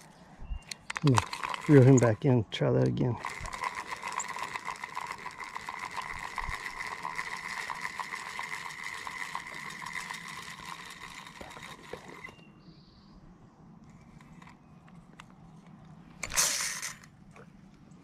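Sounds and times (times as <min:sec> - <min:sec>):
fishing reel whirring and clicking: 0:00.7 - 0:02.4, 0:03.2 - 0:12.4, 0:16.2 - 0:17.1.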